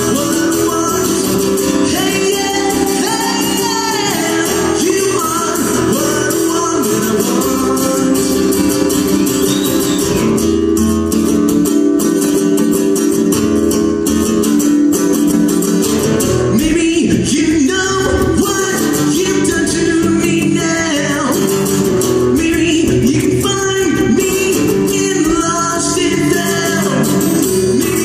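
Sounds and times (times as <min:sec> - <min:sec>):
man singing: 0:00.0 - 0:10.2, 0:16.2 - 0:28.0
acoustic guitar strumming: 0:00.0 - 0:28.0.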